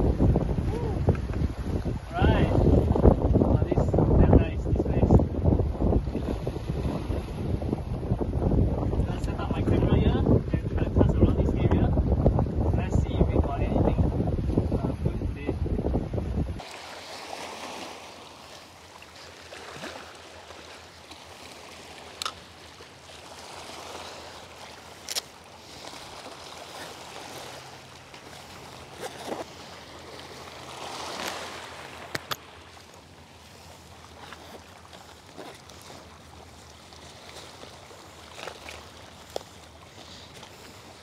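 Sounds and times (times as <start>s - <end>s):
sea waves lapping on rocks: 16.6s - 41.0s.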